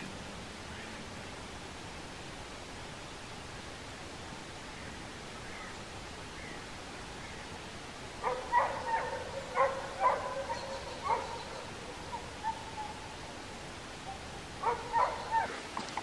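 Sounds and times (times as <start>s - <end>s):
distant animal calls: 4.6s - 15.7s.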